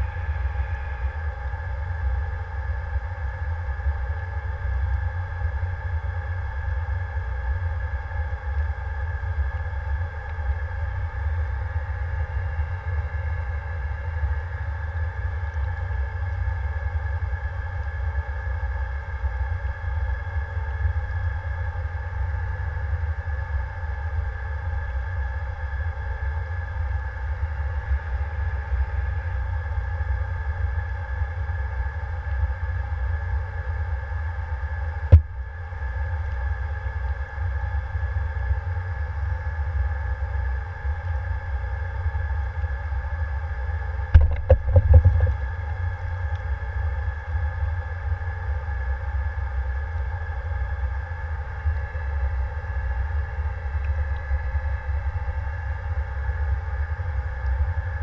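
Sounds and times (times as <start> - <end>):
steady multi-tone whine: 0.0 - 58.0.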